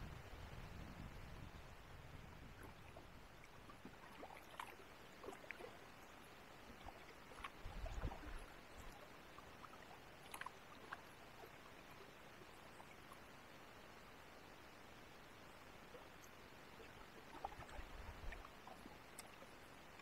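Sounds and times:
water drips and splashes: 2.5s - 13.4s, 15.9s - 20.0s.

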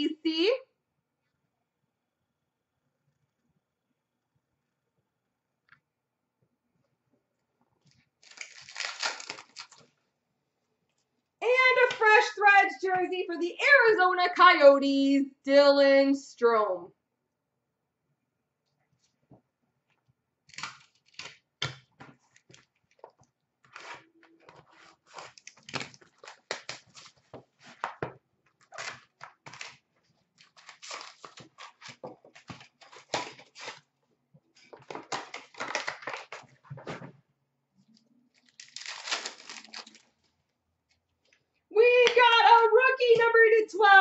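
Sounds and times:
foil pack tearing: 8.2s - 9.8s, 30.4s - 33.9s, 38.4s - 40.1s
foil wrapper crinkling: 8.2s - 10.0s, 24.9s - 27.2s, 28.6s - 33.9s, 38.3s - 40.3s.

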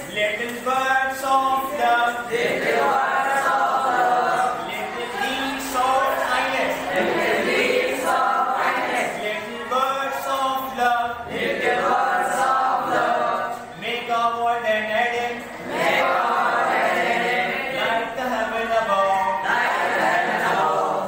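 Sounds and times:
students chanting in unison: 1.4s - 13.6s, 15.5s - 18.4s, 19.3s - 21.0s.

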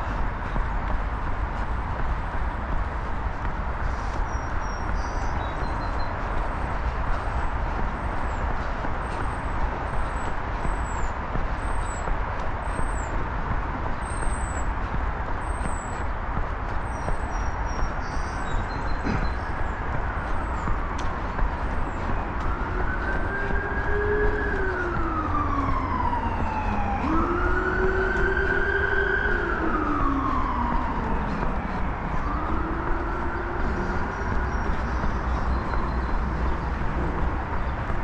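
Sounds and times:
siren wailing: 19.2s - 38.0s.

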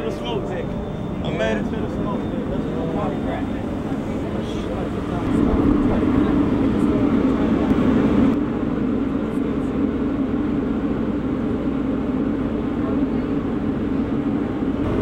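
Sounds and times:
low rumble: 0.0s - 15.0s
ship machinery hum: 0.0s - 15.0s.

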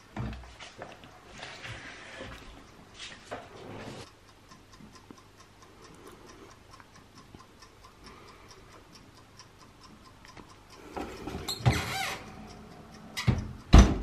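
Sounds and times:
mechanical timer ticking: 4.0s - 14.0s.

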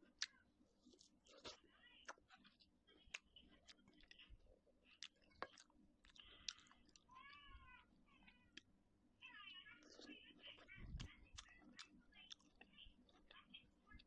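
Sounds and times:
chewing: 0.0s - 7.6s, 9.7s - 14.0s
mouth clicks and lip smacks: 4.9s - 7.1s.

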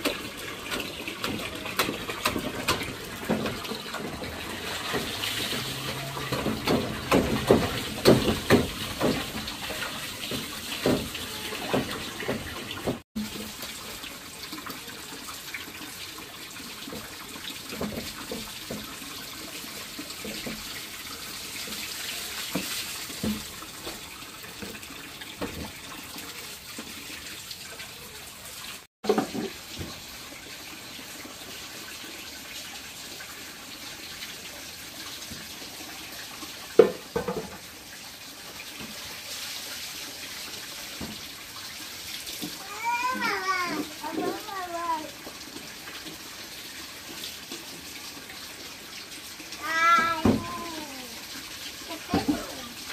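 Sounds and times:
sharp knocks and clatter: 0.0s - 13.0s, 36.8s - 37.6s
running water: 0.0s - 52.9s.

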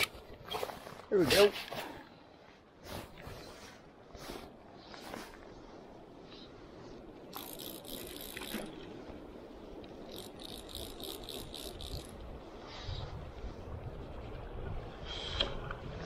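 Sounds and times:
fly reel drag ratcheting: 7.3s - 8.8s, 10.0s - 12.2s.

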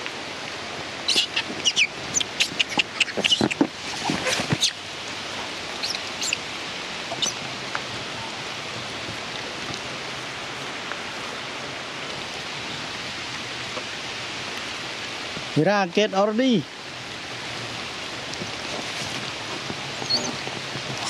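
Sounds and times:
rain falling on forest: 0.0s - 21.0s
short high squeaks: 1.1s - 4.8s, 7.1s - 7.4s, 20.0s - 20.4s.

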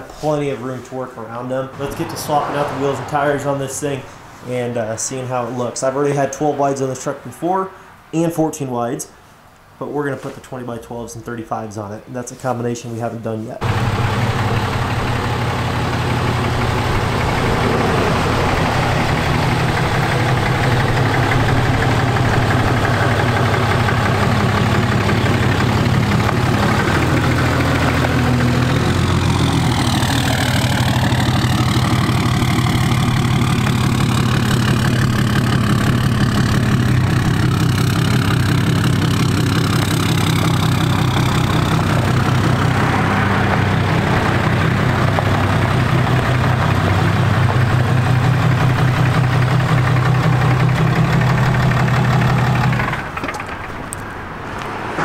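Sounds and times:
pickup truck engine idling: 13.6s - 54.6s.

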